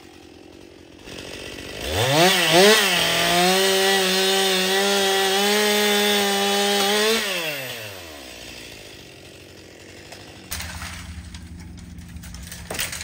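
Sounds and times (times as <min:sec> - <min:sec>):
chainsaw running at high revs: 0:00.0 - 0:13.0.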